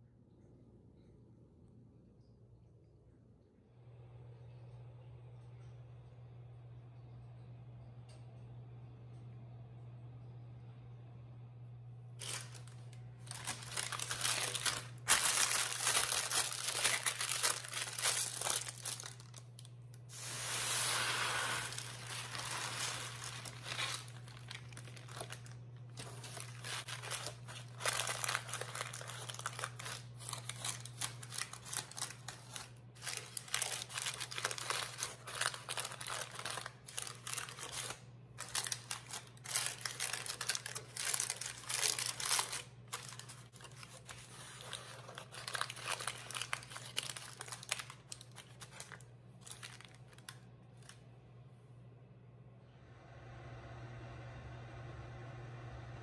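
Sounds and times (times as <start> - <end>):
steady low hum: 0.0 - 56.0
parchment paper crinkling: 12.2 - 51.1
dry rice rustling: 20.1 - 30.0.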